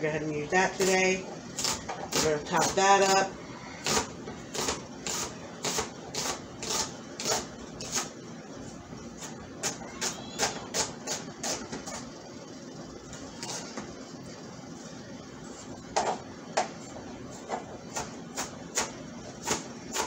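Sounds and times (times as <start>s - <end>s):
knife chopping onion on cutting board: 17.9s - 20.0s.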